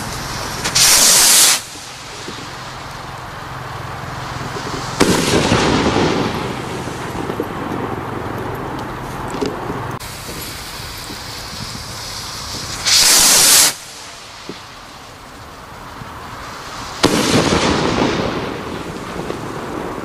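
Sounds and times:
firework rocket whoosh: 0.0 - 9.0, 9.6 - 20.0
firework shell bang: 4.4 - 8.0, 17.0 - 19.4.

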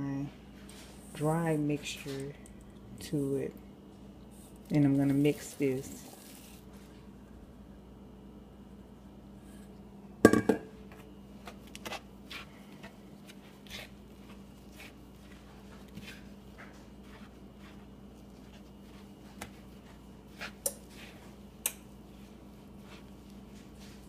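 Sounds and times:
wooden spoon scraping bowl: 13.2 - 21.4.

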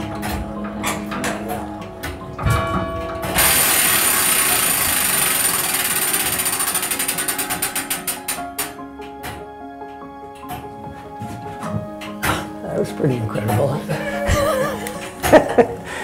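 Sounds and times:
clock striking train clattering: 0.0 - 8.8.

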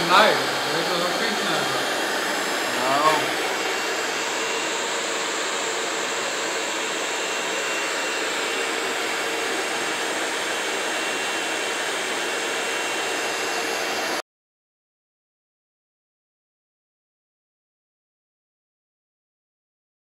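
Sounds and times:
heat gun blowing hot air: 0.0 - 14.2.

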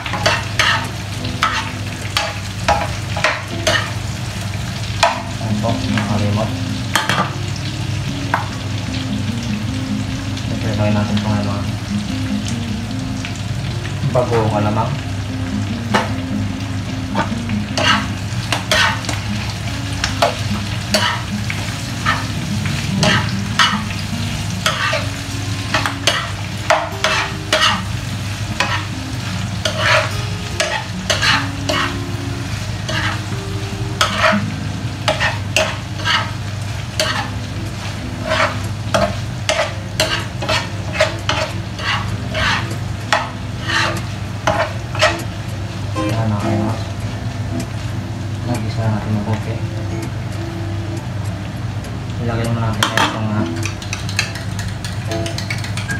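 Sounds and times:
spatula scraping a pan: 0.0 - 4.0, 17.2 - 19.2, 20.2 - 21.4, 22.0 - 22.3, 23.0 - 24.0, 24.6 - 25.1, 25.7 - 28.0, 28.6 - 29.0, 29.6 - 32.0, 32.8 - 33.3, 34.0 - 36.4, 37.0 - 37.4, 38.2 - 45.2
food sizzling in a pan: 0.0 - 55.9.

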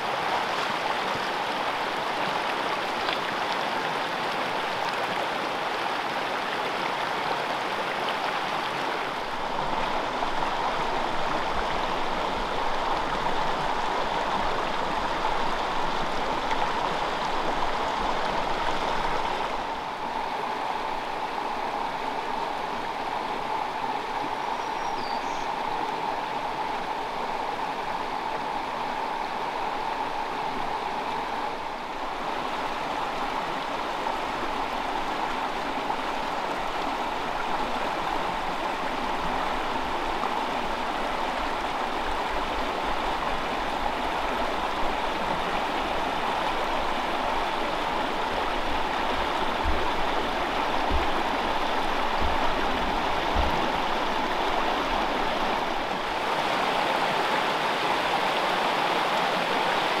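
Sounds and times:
stream flowing over rocks: 0.0 - 60.0.

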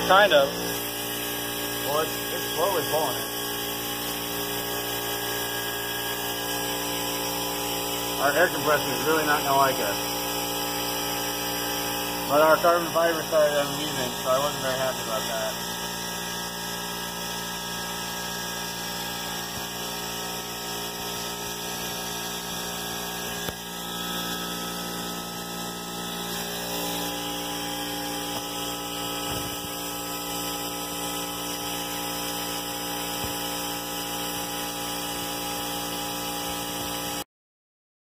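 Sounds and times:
steady hum: 0.0 - 15.6, 20.3 - 31.6
air compressor running: 0.0 - 37.2
air hissing: 26.3 - 29.9.

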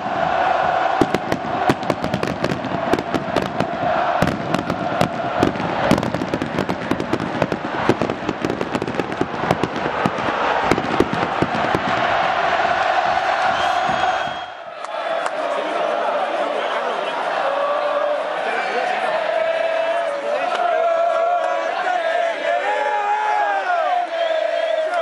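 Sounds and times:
firecrackers and fireworks crackling: 0.0 - 14.6
stadium crowd singing: 0.0 - 25.0.

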